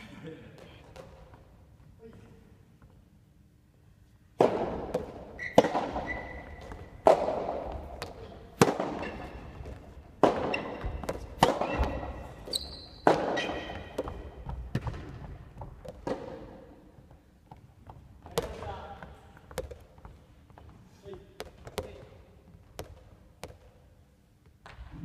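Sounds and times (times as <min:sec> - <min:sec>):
rackets striking tennis ball: 0:04.3 - 0:18.7, 0:19.3 - 0:20.7
ball bouncing on wooden floor: 0:04.4 - 0:20.8
sneakers squeaking on floor: 0:05.0 - 0:16.4.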